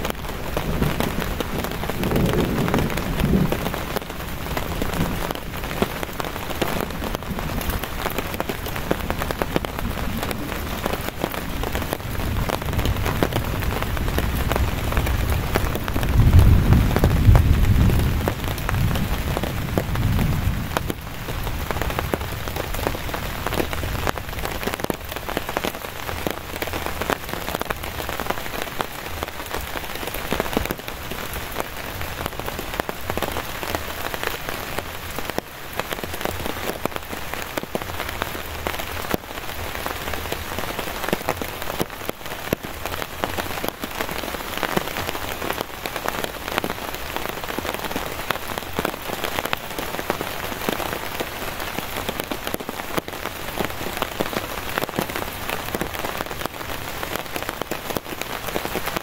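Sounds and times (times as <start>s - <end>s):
heavy rain: 0.0s - 59.0s
raindrops striking nearby: 0.0s - 59.0s.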